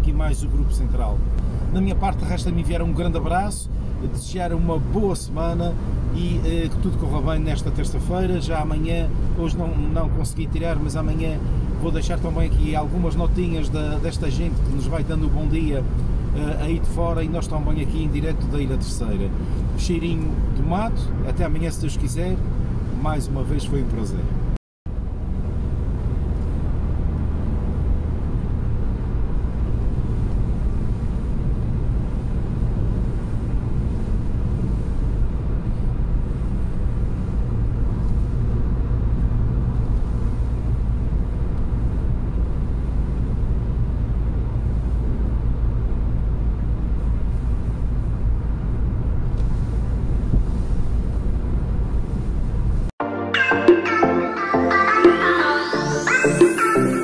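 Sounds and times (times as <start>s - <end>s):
car road noise rumble: 0.0s - 52.9s
music: 53.0s - 57.0s.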